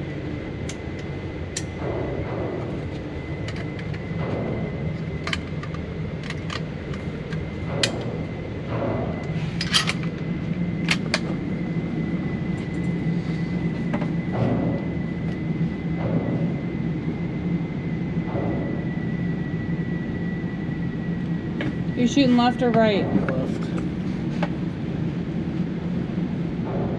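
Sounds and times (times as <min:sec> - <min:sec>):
steady low rumble: 0:00.0 - 0:26.9
sharp clicks and knocks: 0:00.7 - 0:11.4.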